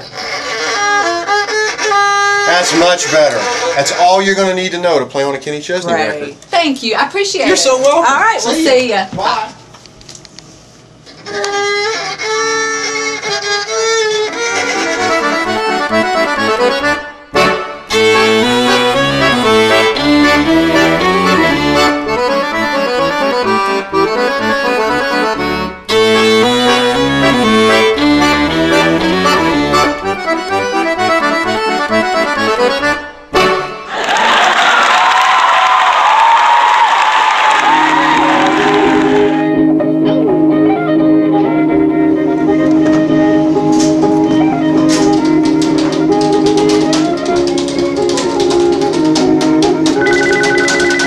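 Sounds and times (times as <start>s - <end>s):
fiddle: 0.0s - 4.3s, 11.1s - 33.8s
piano accordion: 0.0s - 4.7s, 11.1s - 34.0s, 37.6s - 51.0s.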